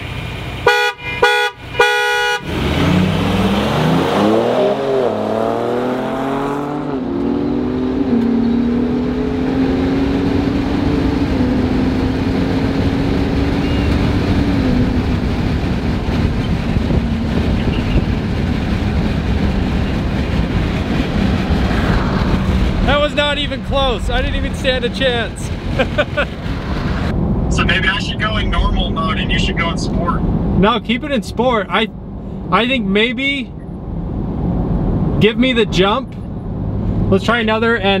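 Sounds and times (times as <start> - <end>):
car horn honk: 0.6 - 2.6
truck engine accelerating hard: 1.9 - 32.2.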